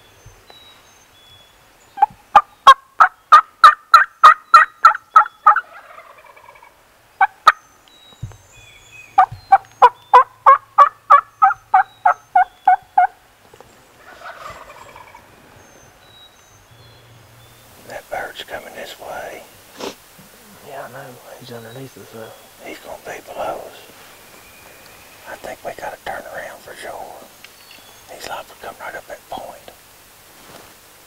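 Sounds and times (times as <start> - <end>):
turkey yelping: 2.0 - 7.6, 9.2 - 13.2, 14.0 - 15.3.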